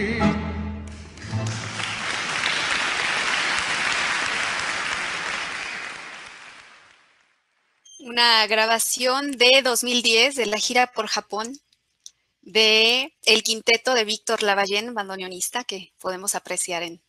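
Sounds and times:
audience applauding: 0:00.9 - 0:07.3.

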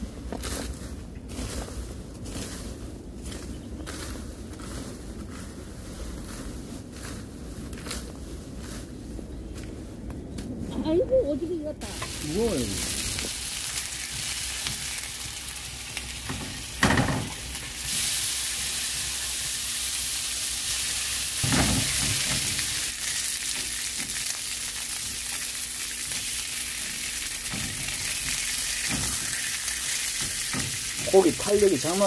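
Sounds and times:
meat sizzling in a pan: 0:11.9 - 0:32.0.

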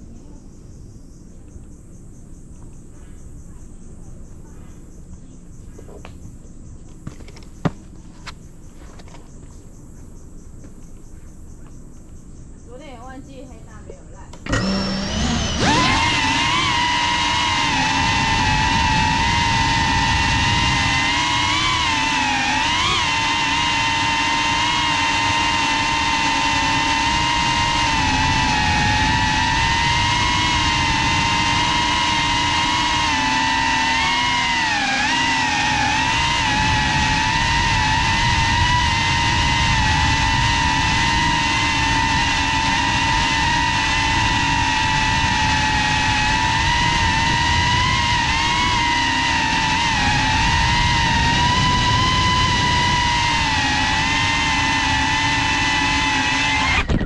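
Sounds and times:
quadcopter motors whining: 0:01.1 - 0:57.0
wind rushing on microphone: 0:14.6 - 0:24.2, 0:25.1 - 0:33.2, 0:35.8 - 0:55.3, 0:56.6 - 0:57.0.

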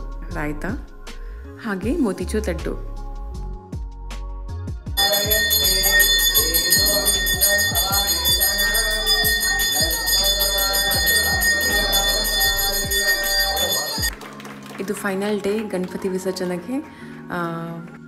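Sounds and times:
devotional music: 0:00.0 - 0:18.0
drumbeats: 0:05.0 - 0:14.1
people singing: 0:05.0 - 0:14.1
bell ringing: 0:05.0 - 0:14.2.

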